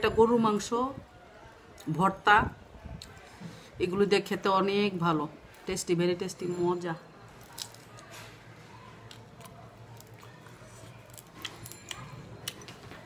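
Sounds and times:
chewing and mouth sounds: 7.3s - 8.1s, 8.9s - 13.0s.

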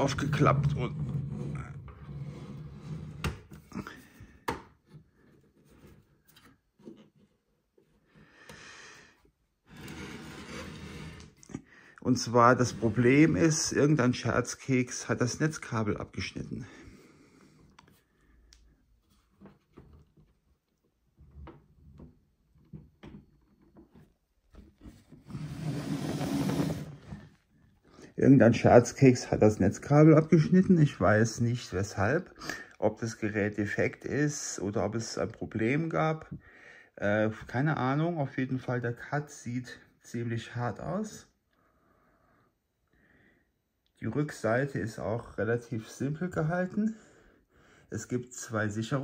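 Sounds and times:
soft rubbing and sliding: 9.6s - 11.4s, 12.1s - 14.0s, 23.9s - 27.5s
case scraping across tabletop: 9.7s - 11.4s, 24.9s - 27.4s.

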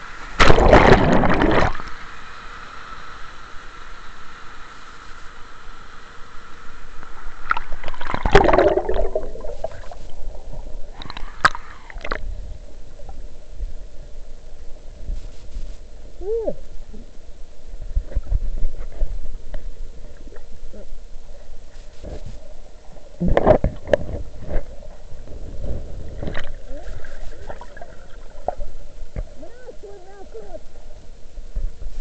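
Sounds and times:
river water splashing and gurgling: 0.0s - 2.8s, 7.2s - 12.2s
muffled underwater noise: 15.1s - 31.9s.

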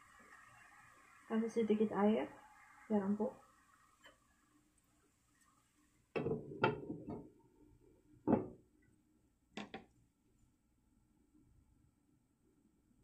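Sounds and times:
cookware and utensils knocking: 6.2s - 7.2s.

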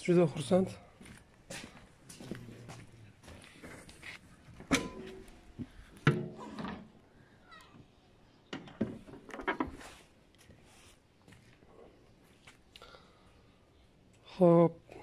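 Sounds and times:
metallic clunks of car bonnet: 4.7s - 5.2s.

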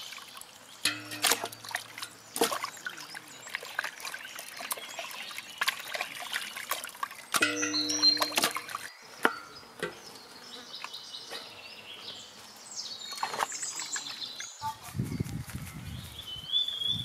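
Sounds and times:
water splashing in metal basin: 0.0s - 8.9s
faint high-pitched chirping: 7.4s - 17.0s.

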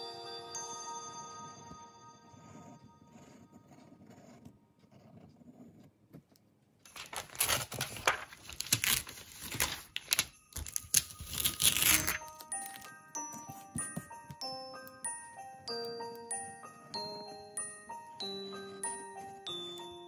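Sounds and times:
chiming background music: 0.0s - 3.8s, 8.8s - 20.0s
paper crinkling rustle: 6.9s - 12.9s.

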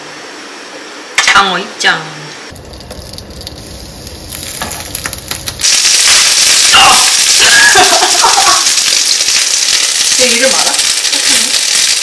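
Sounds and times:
eggplant frying in hot oil: 2.5s - 12.0s.

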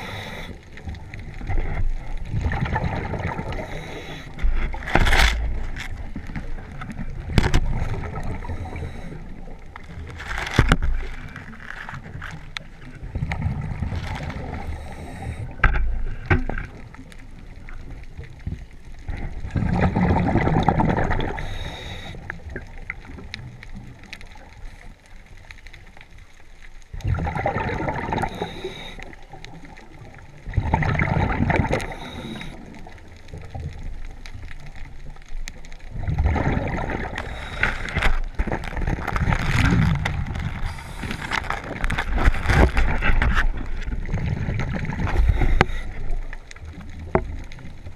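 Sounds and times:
diver breathing through regulator: 0.0s - 0.7s, 3.5s - 4.5s, 8.2s - 9.3s, 14.6s - 15.6s, 21.2s - 22.3s, 28.2s - 29.2s, 31.6s - 32.8s, 37.1s - 38.2s, 40.6s - 41.8s, 45.0s - 46.1s
gurgling exhaust bubbles: 27.0s - 28.4s, 30.5s - 31.9s.

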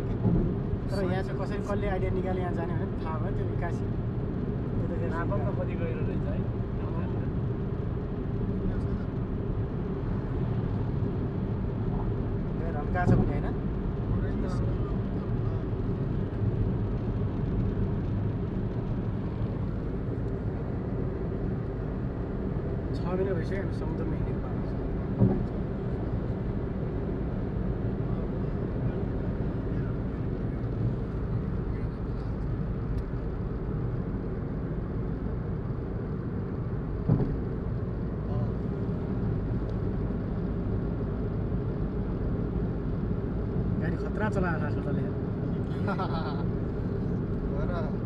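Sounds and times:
car road noise from inside: 0.0s - 48.0s
brief thump: 25.2s - 25.5s, 37.0s - 37.4s.

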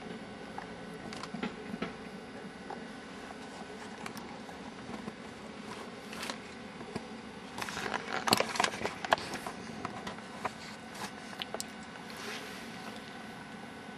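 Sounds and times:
low room hum: 0.0s - 13.9s
camcorder handling clicks and rustling: 6.1s - 9.5s.

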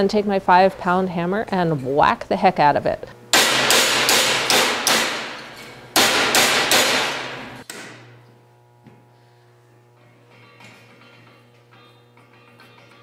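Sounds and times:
hammer striking sheet steel: 3.3s - 8.0s.

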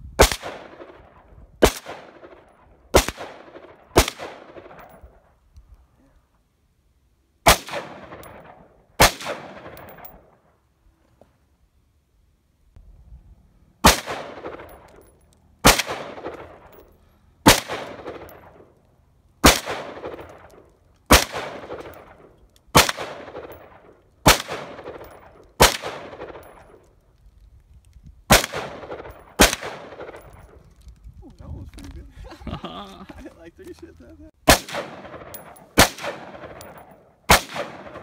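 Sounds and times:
rifle shots echoing: 0.2s - 5.1s, 7.4s - 10.4s, 13.8s - 16.8s, 17.4s - 18.7s, 19.4s - 26.8s, 28.3s - 30.6s, 34.4s - 38.0s.

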